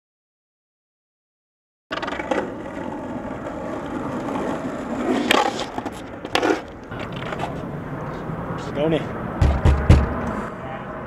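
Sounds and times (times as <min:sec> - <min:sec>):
skateboard clacking on ground: 0:01.9 - 0:07.7
skateboard wheels rolling on asphalt: 0:01.9 - 0:10.6.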